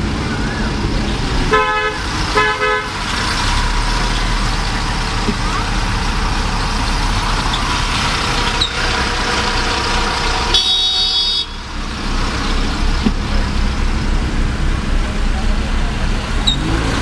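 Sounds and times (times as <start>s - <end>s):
car engine low rumble: 0.0s - 17.0s
road noise: 0.0s - 17.0s
high-pitched vehicle horn: 1.5s - 3.0s, 10.4s - 11.7s.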